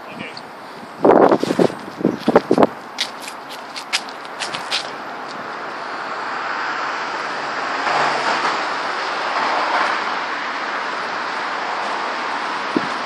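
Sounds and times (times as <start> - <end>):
gusty wind on microphone: 0.0 - 13.0.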